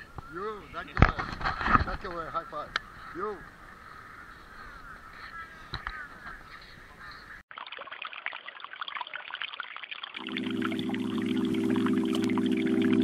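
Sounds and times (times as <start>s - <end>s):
faint bird calls: 0.0s - 1.0s, 2.1s - 7.4s
music with sustained tones: 10.2s - 13.0s.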